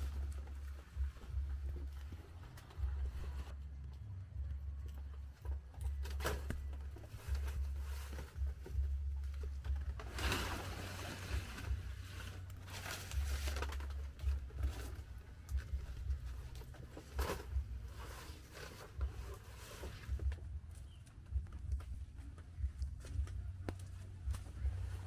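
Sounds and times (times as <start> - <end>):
low rumble: 0.0 - 25.0
banana leaves rustling: 5.9 - 20.3.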